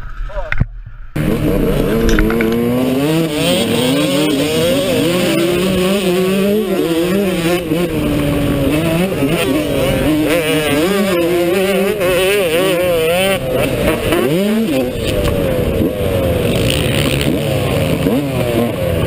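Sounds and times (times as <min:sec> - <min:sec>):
dirt bike engine revving: 0:01.1 - 0:19.0.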